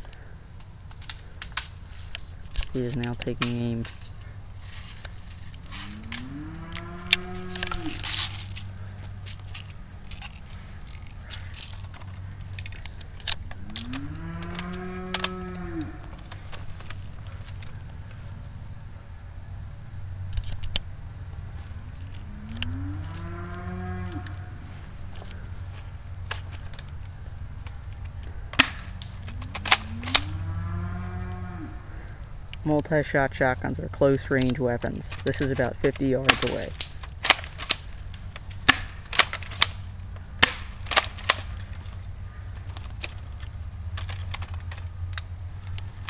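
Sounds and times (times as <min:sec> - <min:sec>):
sharp clicks: 0:00.0 - 0:18.2, 0:22.0 - 0:30.6, 0:32.5 - 0:46.0
cow mooing: 0:05.7 - 0:08.4, 0:13.6 - 0:16.3, 0:22.2 - 0:25.5, 0:29.2 - 0:32.2
airsoft gun shots: 0:28.5 - 0:29.0, 0:38.6 - 0:39.8, 0:40.4 - 0:41.5.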